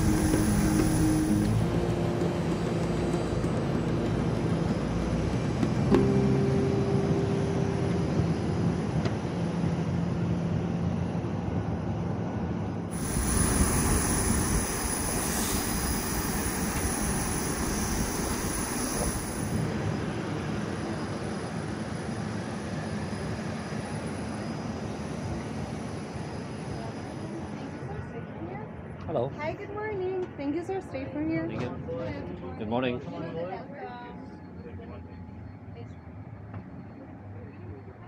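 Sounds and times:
bright hiss: 0.0s - 1.6s, 12.9s - 19.7s
jet aircraft noise: 0.0s - 30.4s.

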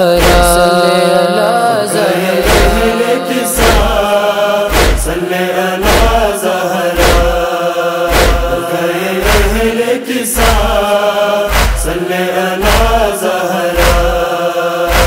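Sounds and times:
wordless vocal chant: 0.0s - 15.0s
deep chest-beating thumps: 4.7s - 5.2s, 5.8s - 6.3s, 7.0s - 7.5s, 8.1s - 8.6s, 9.2s - 9.7s, 11.5s - 12.0s, 13.8s - 14.2s.

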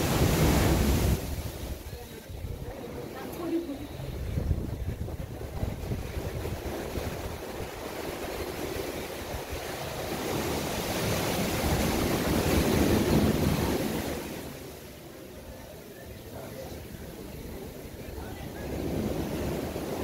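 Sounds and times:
wind buffeting microphone: 0.0s - 14.2s
sea waves washing: 0.0s - 20.0s.

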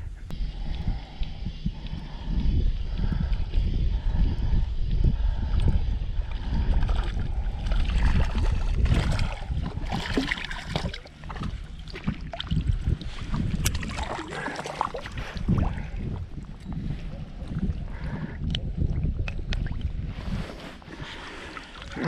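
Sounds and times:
wind buffeting microphone: 0.0s - 22.0s
water splashing and sloshing: 6.2s - 22.0s.

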